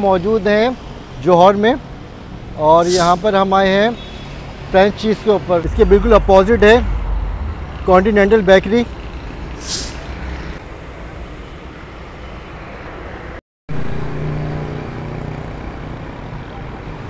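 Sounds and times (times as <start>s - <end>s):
cars passing on street: 0.0s - 17.0s
brief hiss: 2.8s - 3.2s, 9.6s - 10.1s
steady low hum: 5.6s - 9.6s.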